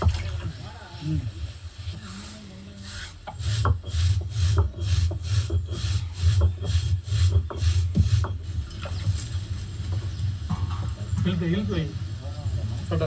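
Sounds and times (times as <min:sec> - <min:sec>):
stone roller rasping on grinding stone: 0:02.0 - 0:08.7.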